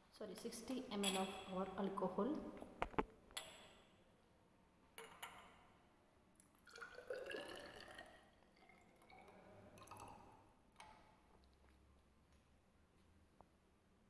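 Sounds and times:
liquid trickling into glass cylinder: 6.6s - 10.5s.

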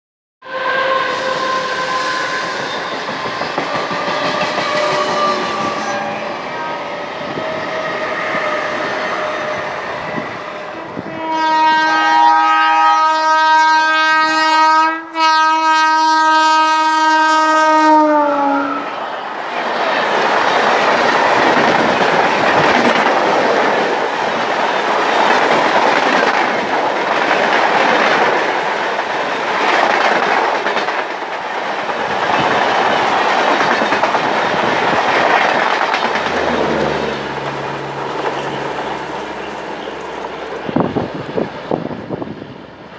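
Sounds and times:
locomotive horn blasts: 0.4s - 2.8s, 4.1s - 6.9s, 8.4s - 19.0s
electric train running: 0.8s - 11.1s, 19.6s - 42.9s
wheels clacking over rail joints: 20.1s - 42.1s.

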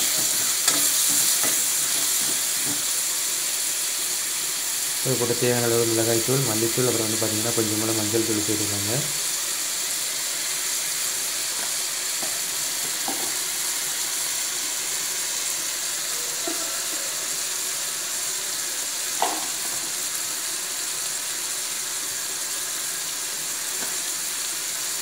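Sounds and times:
spoon tapping pan: 0.0s - 2.9s, 11.6s - 13.4s
vegetables sizzling in oil: 0.0s - 25.0s.

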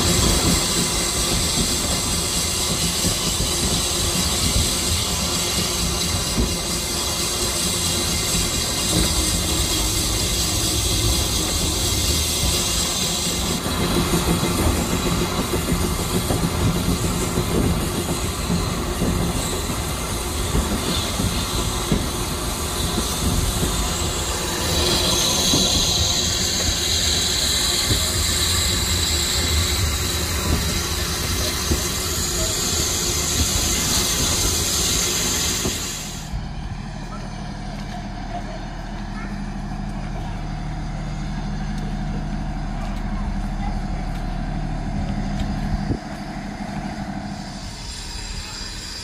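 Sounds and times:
train wheels clacking: 0.0s - 36.3s.

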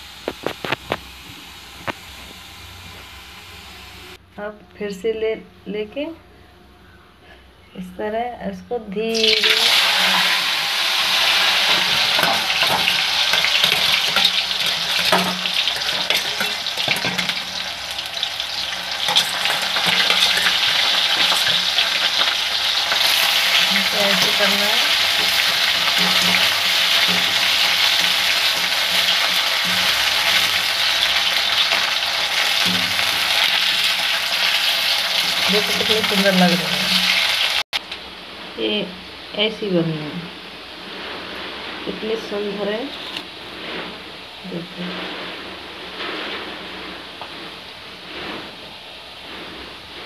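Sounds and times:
potatoes frying in hot oil: 9.1s - 37.6s
wire skimmer scraping a wok: 9.1s - 37.6s, 40.6s - 50.0s.

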